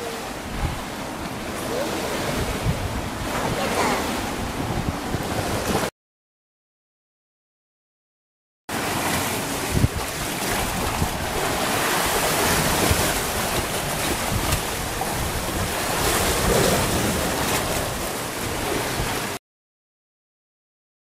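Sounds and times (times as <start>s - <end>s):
waves washing against rocks: 0.0s - 5.9s, 8.7s - 19.4s
wind buffeting microphone: 0.0s - 5.9s, 9.0s - 19.4s.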